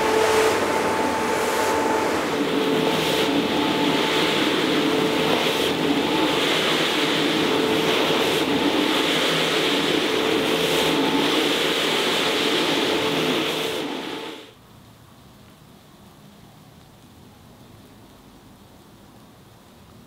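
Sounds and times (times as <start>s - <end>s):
brushes scrubbing wet carpet: 0.0s - 14.3s
carpet cleaner motor hum: 0.0s - 14.5s.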